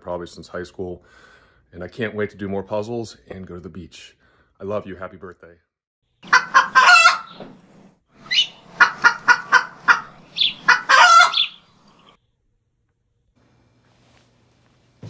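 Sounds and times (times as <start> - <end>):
bird squawk: 6.2 - 7.5, 8.2 - 12.1
chicken-like clucks: 6.2 - 7.5, 8.2 - 12.1.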